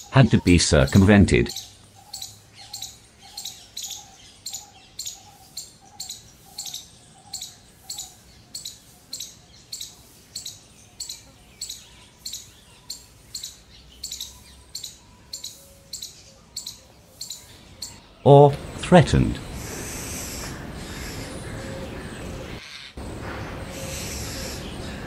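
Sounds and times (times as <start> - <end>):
sharp high bird chirps: 0.0 - 18.0
bird's low tuk note: 18.5 - 25.0.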